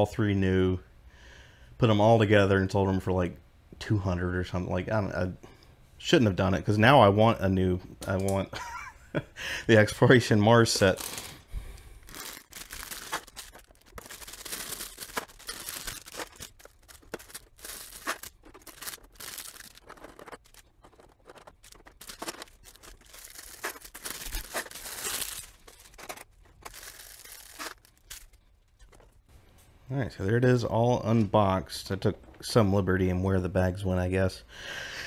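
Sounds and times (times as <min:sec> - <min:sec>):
plastic bags crinkling and tearing: 0:10.5 - 0:29.2
plastic pieces clicking: 0:12.0 - 0:29.1.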